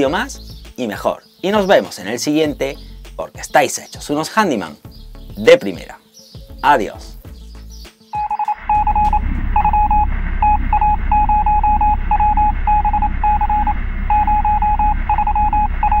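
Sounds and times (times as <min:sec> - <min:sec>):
high electronic beeps: 0:08.2 - 0:16.0
steady low rumble: 0:08.6 - 0:16.0.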